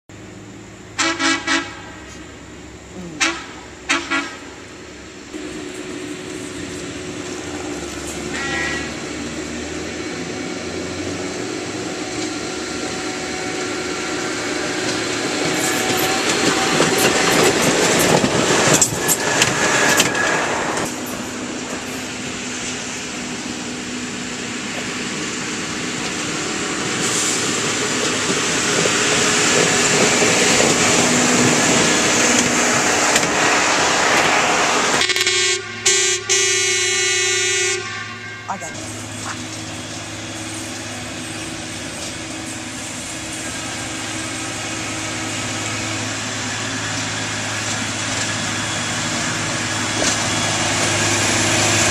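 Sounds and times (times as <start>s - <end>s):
track machines rumbling on rails: 0.1s - 51.9s
horn toots and blast: 8.3s - 9.0s, 35.0s - 39.4s.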